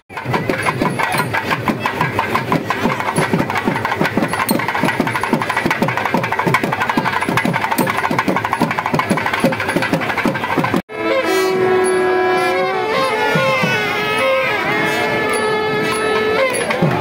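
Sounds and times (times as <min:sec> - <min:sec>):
drums beaten in fast rhythm: 0:00.1 - 0:10.8.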